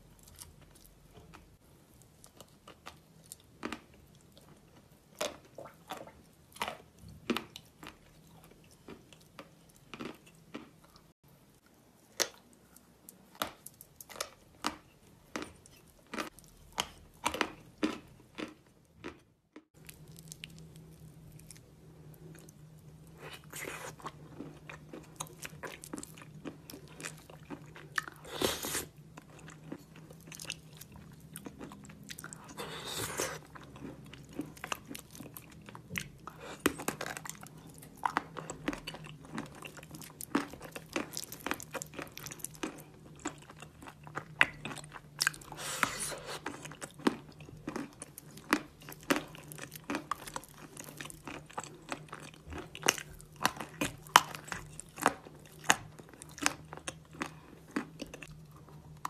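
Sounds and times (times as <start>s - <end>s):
crunchy chewing: 5.2s - 11.1s, 19.8s - 59.0s.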